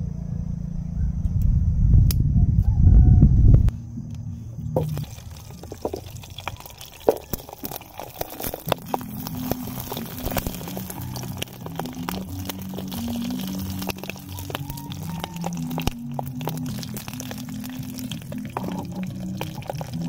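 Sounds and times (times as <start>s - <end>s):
quiet music: 3.6s - 20.0s
sausages bubbling and spitting: 4.6s - 20.0s.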